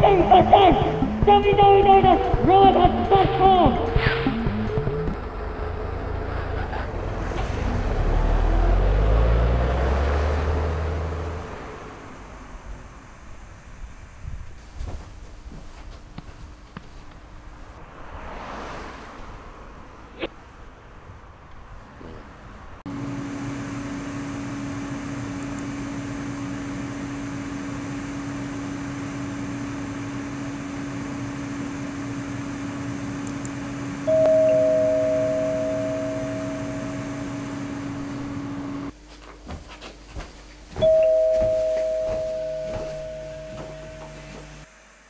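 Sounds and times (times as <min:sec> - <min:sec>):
low hum: 0:00.0 - 0:14.7, 0:22.9 - 0:38.9, 0:40.8 - 0:44.7
doorbell ding-dong: 0:34.1 - 0:38.6, 0:40.8 - 0:44.6.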